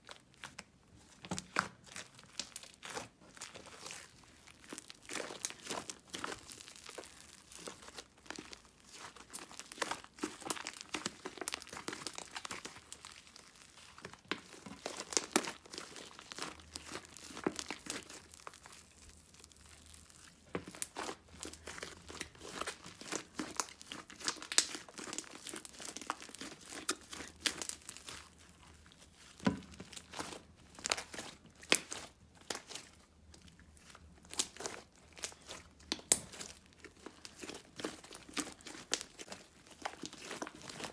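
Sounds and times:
bead-filled slime crackling and popping: 0:00.0 - 0:40.9.

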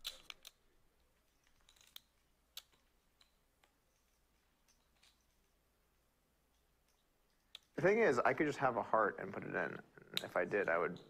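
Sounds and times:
poker chips clicking: 0:00.0 - 0:05.6, 0:06.5 - 0:07.8.

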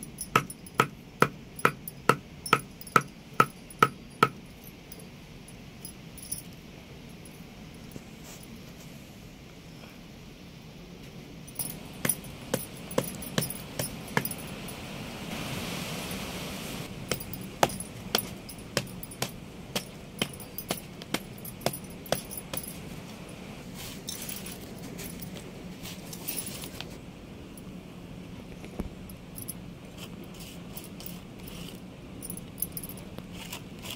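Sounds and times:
pestle pounding jaggery: 0:17.1 - 0:22.6.

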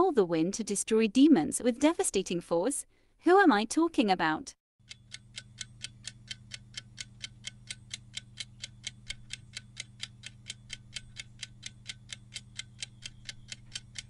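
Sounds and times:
clock ticking: 0:04.8 - 0:14.0.

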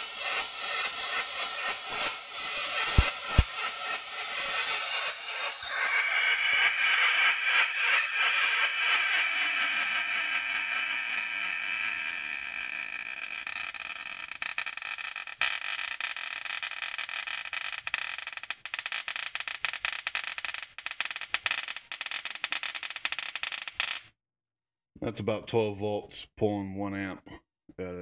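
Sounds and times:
tesla coil spark buzzing: 0:00.0 - 0:24.1.

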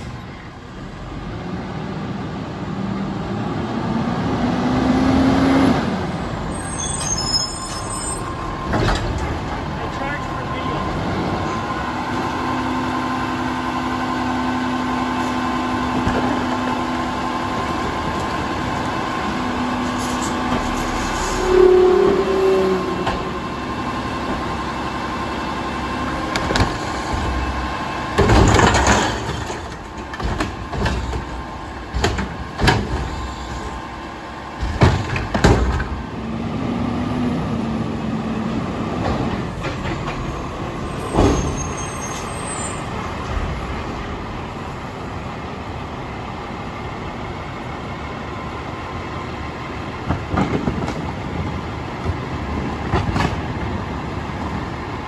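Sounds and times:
garbage truck engine and hydraulics: 0:00.0 - 0:55.0
loud bangs and clatter: 0:28.1 - 0:33.3, 0:34.6 - 0:36.0.

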